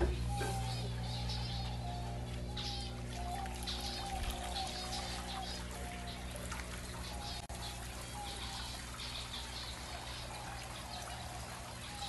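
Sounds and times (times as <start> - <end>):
whistled bird notes: 0.0 - 6.3
small birds chirping: 0.0 - 12.0
steady low hum: 0.0 - 12.0
trickling water: 0.0 - 12.0.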